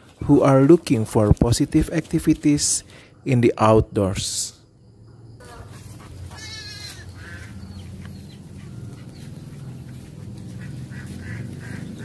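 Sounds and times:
ducks quacking: 5.4s - 12.0s
steady low rumble: 7.1s - 12.0s.

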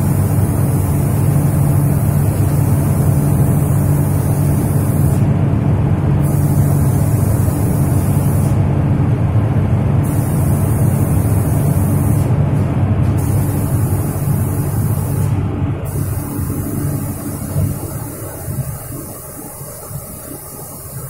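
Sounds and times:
spray gun hissing: 0.0s - 5.3s, 6.2s - 8.6s, 10.0s - 12.3s, 13.1s - 21.0s
low machine hum: 0.0s - 21.0s.

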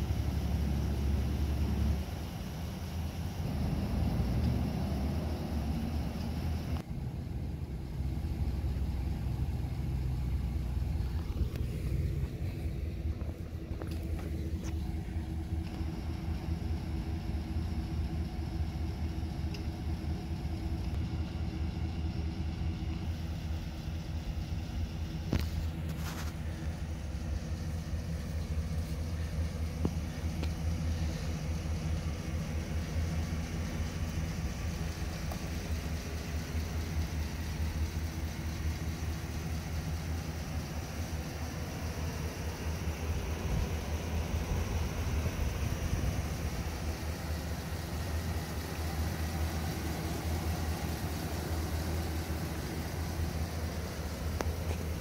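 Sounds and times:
truck engine idling: 0.0s - 55.0s.

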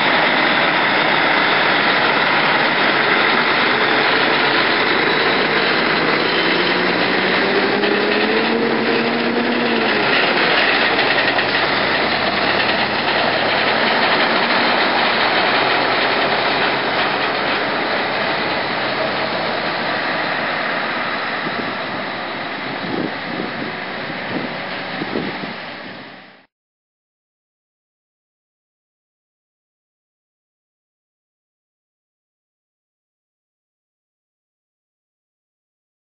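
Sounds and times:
tyres on gravel road: 0.0s - 26.4s
heavy diesel trucks driving past: 0.0s - 26.5s.

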